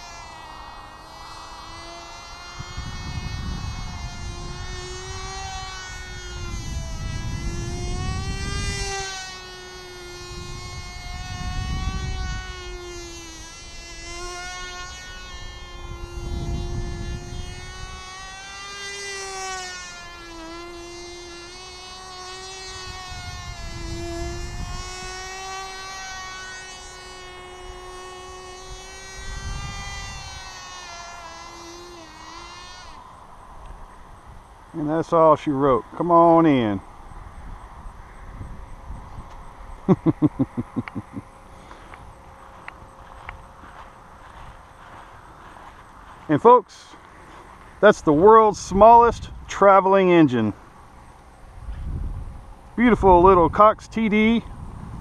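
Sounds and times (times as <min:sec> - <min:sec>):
model plane engine buzzing: 0:00.0 - 0:55.0
low rumbling microphone noise: 0:47.3 - 0:55.0.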